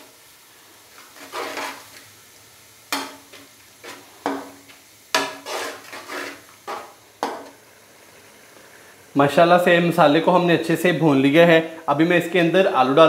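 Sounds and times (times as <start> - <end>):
low sizzle: 0.0 - 13.0
metal spoon scraping a pan: 1.0 - 2.0, 2.9 - 7.6.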